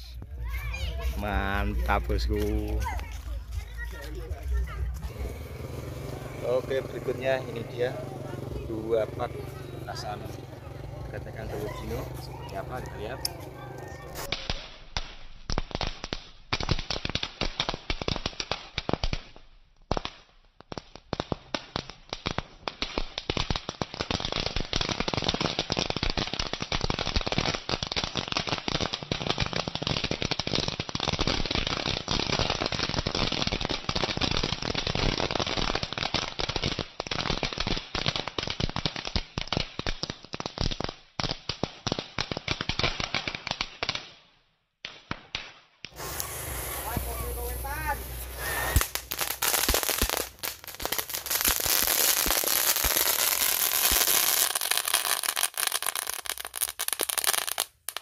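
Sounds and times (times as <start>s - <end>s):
firecrackers crackling: 0.0s - 58.0s.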